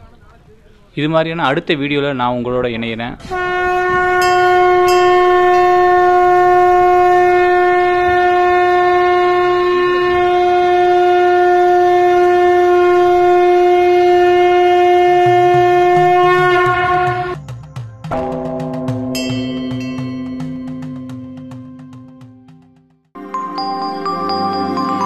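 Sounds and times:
conch shell blown: 3.3s - 17.4s, 18.1s - 21.8s.

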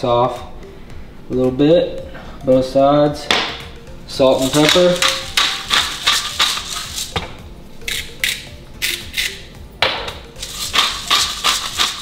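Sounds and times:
pepper mill grinding: 4.4s - 7.2s, 7.9s - 9.4s, 10.4s - 12.0s.

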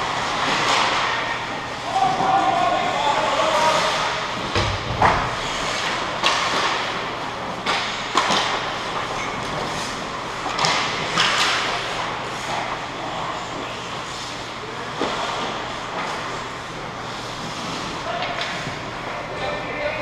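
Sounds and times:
hockey sticks and puck clacking: 0.0s - 19.7s.

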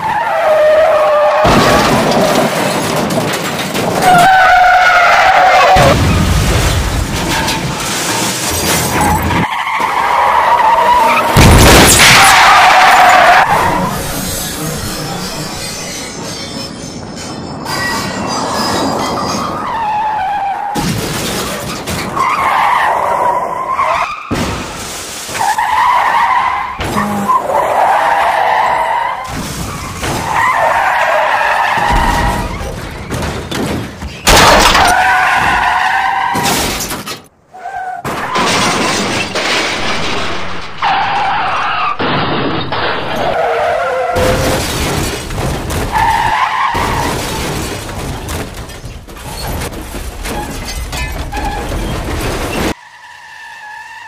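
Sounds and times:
car crashes: 0.0s - 37.3s, 37.9s - 52.9s
tyres screeching: 3.9s - 6.0s, 7.2s - 20.8s, 40.6s - 44.8s
glass breaking: 11.4s - 12.5s, 31.9s - 35.2s, 38.1s - 41.3s.

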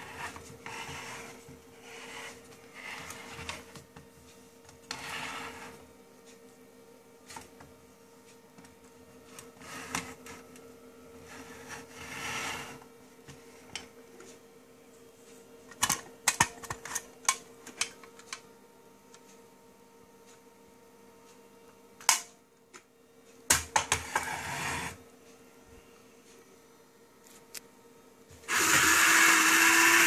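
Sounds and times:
toy motor hum: 28.5s - 30.0s.

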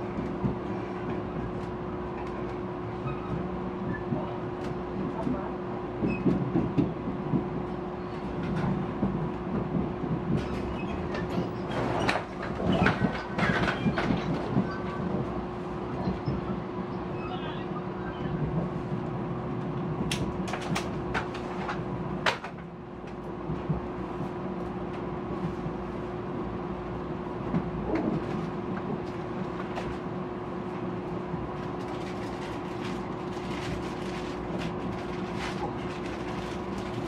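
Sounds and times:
train carriage rumble: 0.0s - 37.0s.

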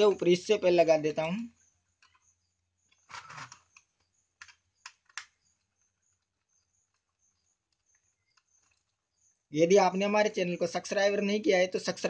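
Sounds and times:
brief rustle: 3.0s - 5.3s.

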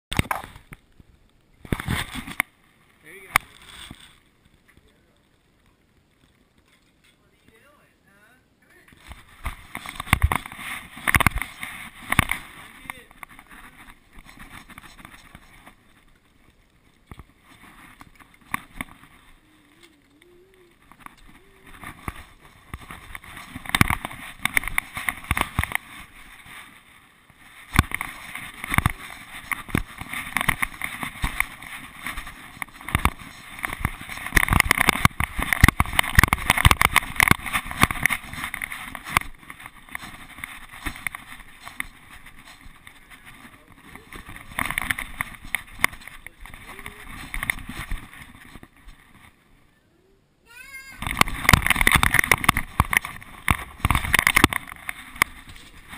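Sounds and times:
camera rubbing and clattering: 0.1s - 0.8s, 1.6s - 2.5s, 3.2s - 4.2s, 8.9s - 49.4s, 51.0s - 55.9s.

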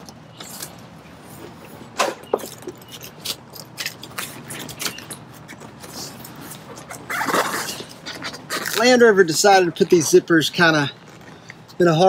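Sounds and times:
zipper: 6.6s - 8.8s.

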